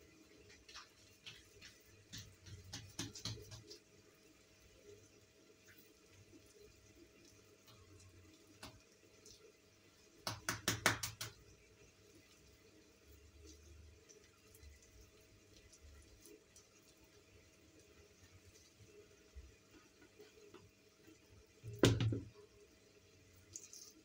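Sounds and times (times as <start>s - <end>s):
rapid clatter of sharp knocks: 10.2s - 11.4s.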